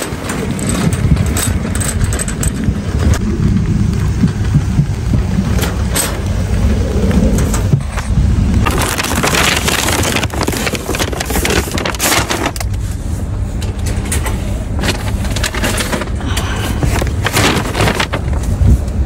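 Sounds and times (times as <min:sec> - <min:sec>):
steady low rumble: 0:00.0 - 0:19.0
paper bags rustling: 0:07.9 - 0:19.0.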